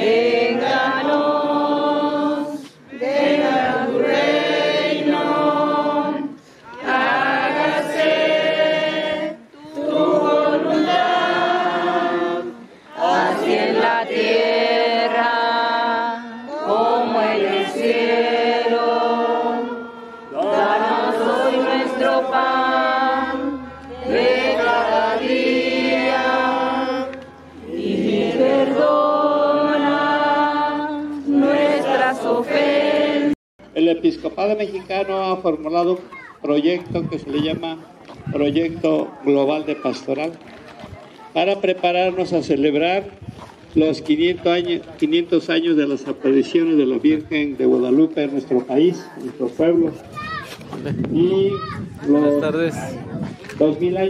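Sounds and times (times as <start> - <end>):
congregation singing in unison: 0.0 - 33.4.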